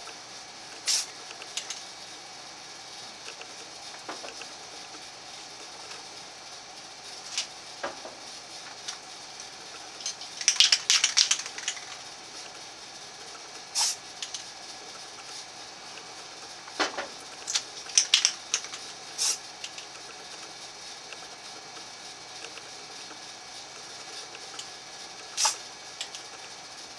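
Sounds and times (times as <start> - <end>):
spray paint can hissing: 0.8 - 1.8, 10.0 - 12.1, 13.7 - 14.3, 17.4 - 19.5, 25.3 - 25.6.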